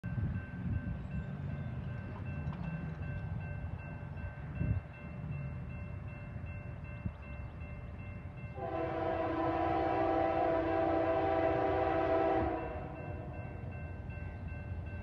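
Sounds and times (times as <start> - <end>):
crossing warning bell ringing: 0.0 - 15.0
locomotive air horn: 8.6 - 13.3.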